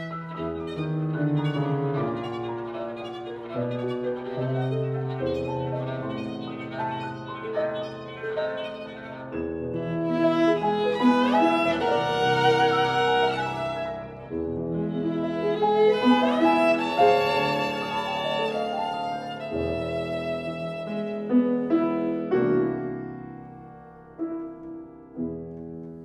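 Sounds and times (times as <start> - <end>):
viola bowed notes: 0.0 - 23.3
piano chords: 0.0 - 26.0.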